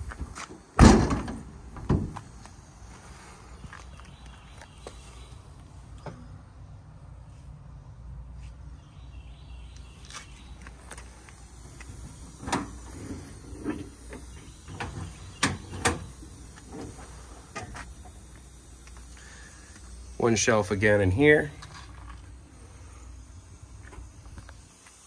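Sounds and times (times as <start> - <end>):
latches clicking and clanking: 11.8 - 16.1.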